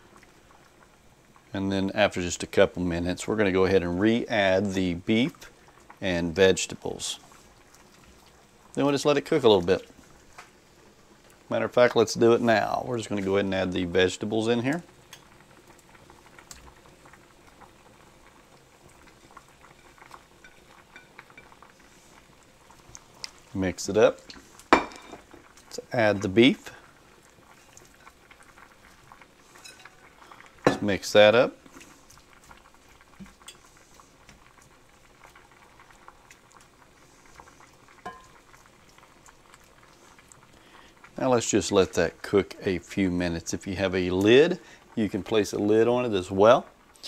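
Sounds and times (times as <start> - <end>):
sauce bubbling in a skillet: 0.0 - 47.0
utensil knocking on skillet: 24.7 - 25.4, 30.6 - 30.9, 38.0 - 38.4.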